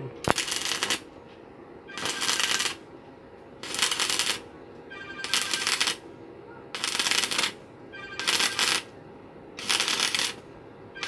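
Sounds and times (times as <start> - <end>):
arc welder crackling: 0.2 - 1.2, 1.9 - 2.9, 3.6 - 4.5, 5.2 - 6.0, 6.7 - 7.6, 8.2 - 9.0, 9.6 - 10.4.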